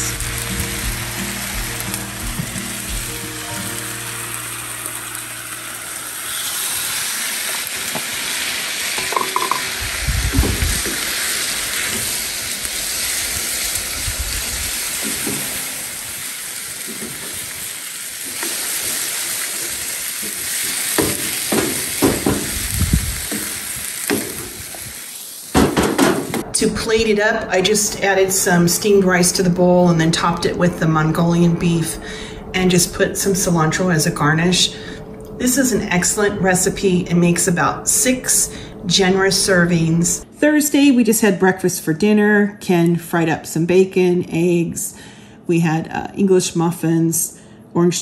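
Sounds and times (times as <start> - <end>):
food sizzling in a wok: 0.0 - 26.4
wooden spoon knocking wok: 9.0 - 9.8, 20.2 - 24.6.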